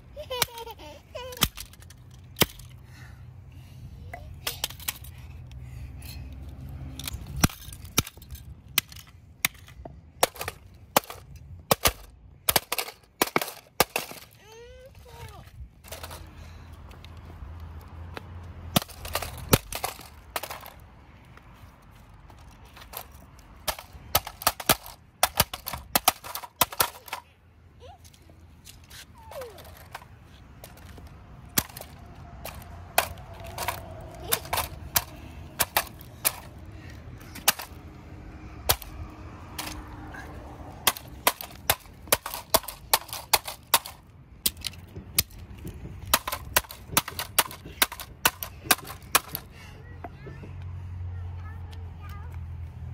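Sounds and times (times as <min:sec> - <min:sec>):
mallet smashing plastic toy car: 0:07.4 - 0:14.3, 0:38.7 - 0:38.9, 0:40.8 - 0:45.3, 0:46.0 - 0:49.4.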